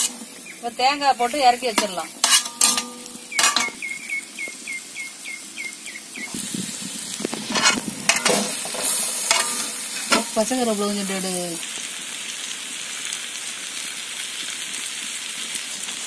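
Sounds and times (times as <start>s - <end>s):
metal ladle clanking and scraping: 0.0s - 0.2s, 1.8s - 3.8s, 7.4s - 10.4s
light sizzle of frying: 0.0s - 16.0s.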